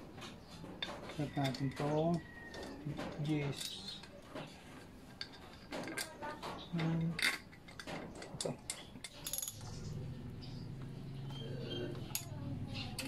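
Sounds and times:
metal tool clinking on bolts: 0.8s - 4.2s, 5.1s - 9.8s.

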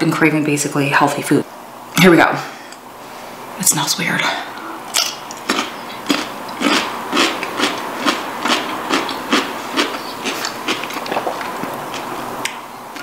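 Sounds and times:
wet crunchy chewing: 4.9s - 13.0s.

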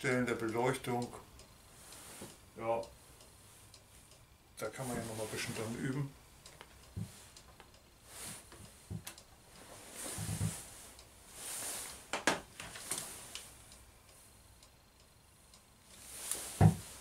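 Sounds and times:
clothing rustling: 9.6s - 13.5s
dull thump: 16.6s - 16.8s.

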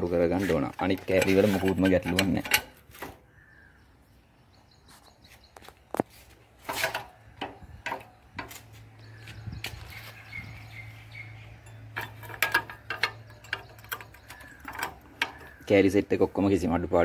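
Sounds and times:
metal brackets clicking and knocking: 0.0s - 3.3s, 5.6s - 9.6s, 10.4s - 16.6s.

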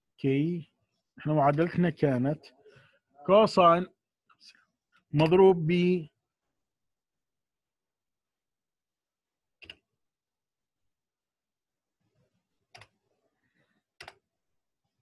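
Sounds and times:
computer keyboard and mouse clicks: 9.6s - 9.9s, 12.7s - 13.0s, 14.0s - 14.3s.

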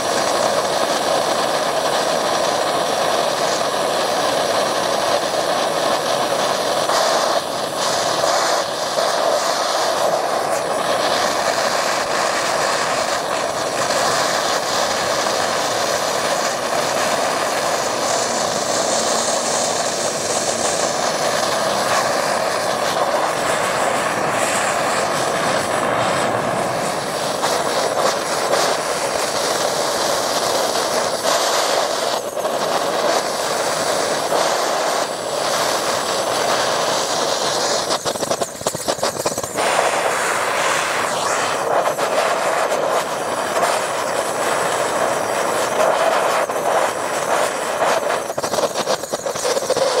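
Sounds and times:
gas torch burning: 0.0s - 50.0s.

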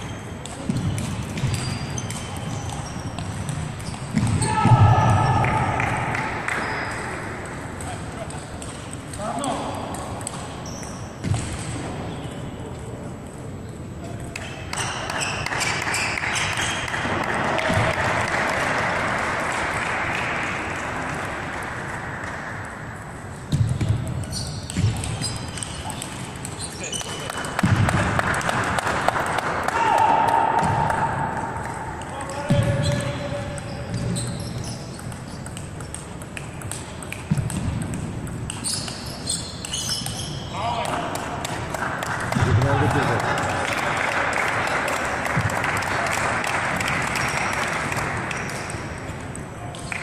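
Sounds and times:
applause in a large hall: 15.0s - 21.9s, 27.0s - 31.0s, 41.1s - 48.6s
table tennis ball clicking: 34.6s - 40.3s.

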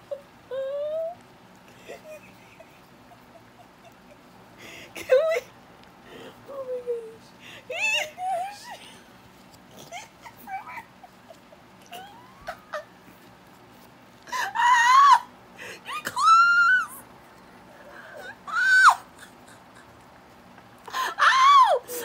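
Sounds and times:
high-pitched wailing cries: 0.0s - 1.2s, 6.5s - 8.9s, 9.8s - 13.0s, 14.3s - 17.0s, 17.9s - 20.0s, 20.9s - 22.0s
faint clicks and rustles: 0.0s - 4.6s, 5.4s - 7.5s, 8.3s - 14.4s, 17.0s - 18.4s, 19.1s - 21.0s.

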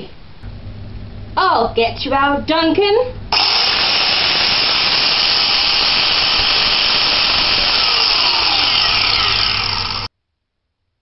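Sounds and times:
angle grinder grinding: 3.4s - 10.1s.

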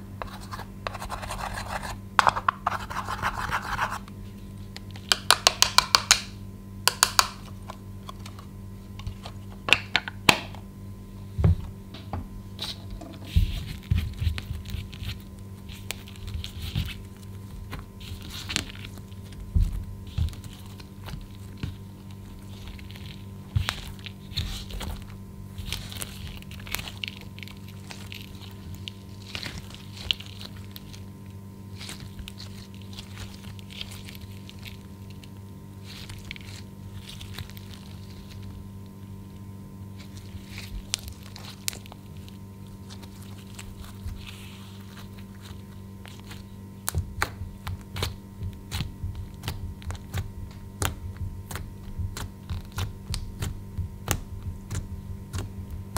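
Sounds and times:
faint steady hum: 0.0s - 55.9s
hands squishing slime: 12.6s - 38.7s, 40.0s - 55.9s.

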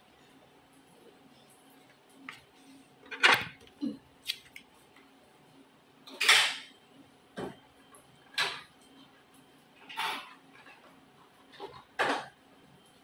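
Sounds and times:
objects clattering on a table: 2.3s - 3.7s, 6.1s - 6.7s, 9.8s - 12.4s.

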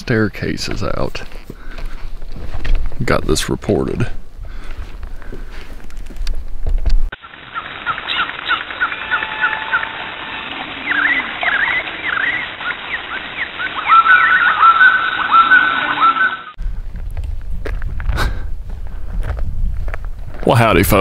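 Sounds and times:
outdoor hiss: 7.1s - 15.3s
songbirds chirping: 7.2s - 16.6s
bird repeating a clear call: 7.5s - 16.5s.

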